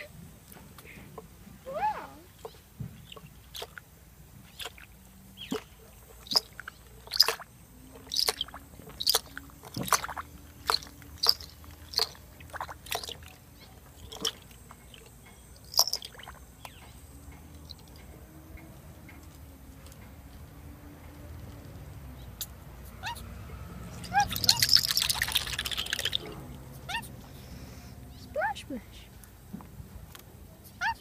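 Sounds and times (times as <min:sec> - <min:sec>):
bird splashing in water: 0:03.0 - 0:16.4, 0:24.0 - 0:26.6.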